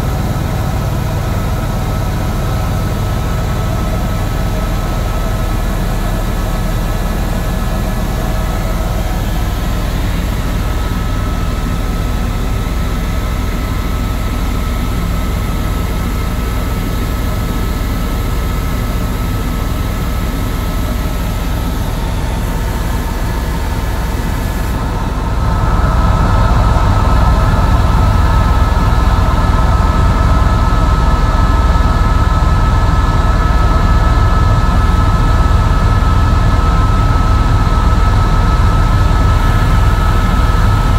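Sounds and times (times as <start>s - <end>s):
helicopter rotor and engine drone: 0.0s - 40.9s
high whine: 0.0s - 40.9s.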